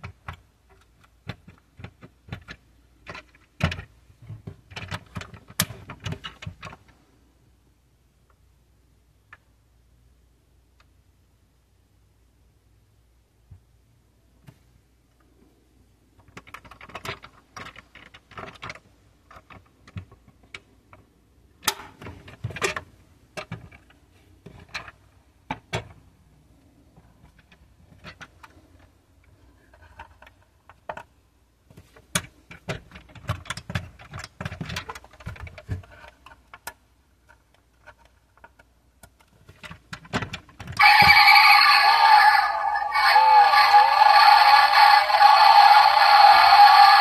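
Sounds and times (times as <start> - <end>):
small clicks and knocks of model car: 0.0 - 7.0, 16.1 - 26.0, 26.9 - 40.8.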